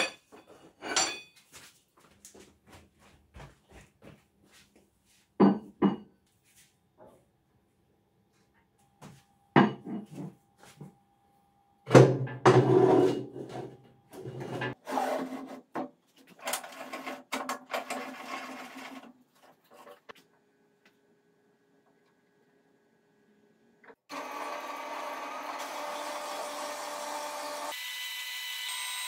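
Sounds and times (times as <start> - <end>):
metal scraping on metal: 12.5 - 15.7.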